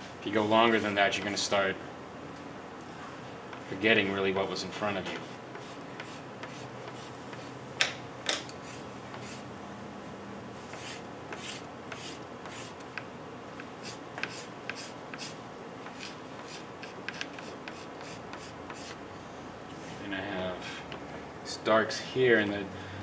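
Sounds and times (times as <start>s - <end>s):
pastel scratching on board: 5.2s - 7.5s, 8.6s - 9.4s, 10.7s - 12.8s, 13.8s - 19.0s.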